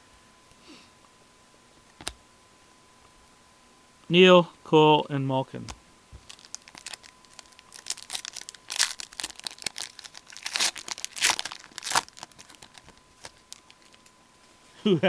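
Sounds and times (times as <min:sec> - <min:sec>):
foil wrapper tearing and crinkling: 0:06.2 - 0:14.1.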